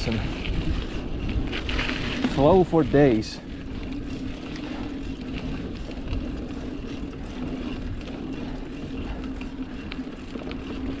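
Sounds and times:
bike clicks and rattles: 0.0 - 11.0
bike tyres humming on dirt: 0.0 - 11.0
wind rumble on microphone: 0.0 - 11.0.

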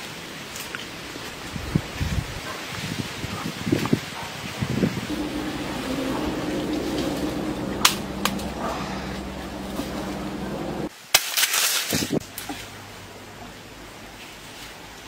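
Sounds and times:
branches and leaves rustling: 5.1 - 15.0
leaves crackling: 5.1 - 15.0
branches snapping: 11.1 - 12.7.

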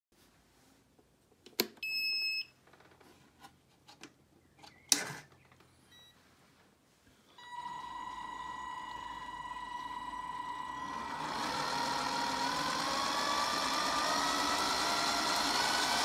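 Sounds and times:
steady electronic tone: 7.4 - 16.0.

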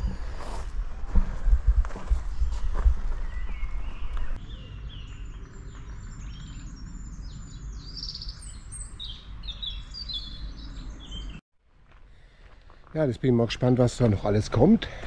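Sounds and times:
songbirds chirping and trilling: 2.4 - 11.4.

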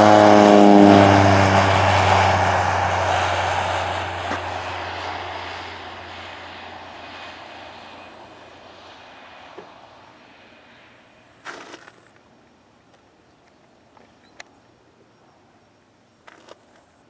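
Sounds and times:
airplane engine and propeller: 0.0 - 12.2.

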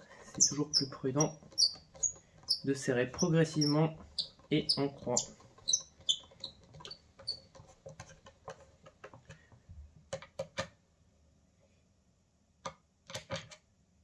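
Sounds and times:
screwdriver squeaking in screws: 0.2 - 7.5.

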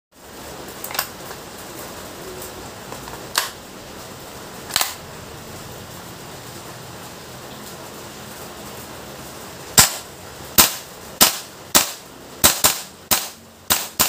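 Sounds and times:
airsoft rifle shots: 9.8 - 14.0.

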